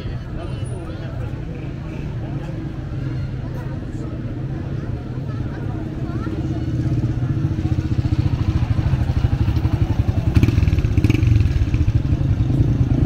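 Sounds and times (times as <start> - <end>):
motorcycle engine running: 6.4 - 13.0.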